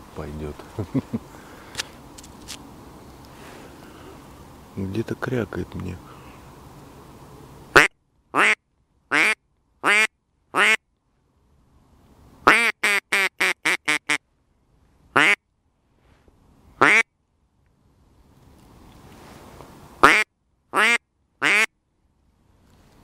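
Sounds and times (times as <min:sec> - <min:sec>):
duck call quacks: 0:07.8 - 0:10.8, 0:12.5 - 0:14.2, 0:15.2 - 0:15.4, 0:16.8 - 0:17.0, 0:20.0 - 0:20.2, 0:20.8 - 0:21.7.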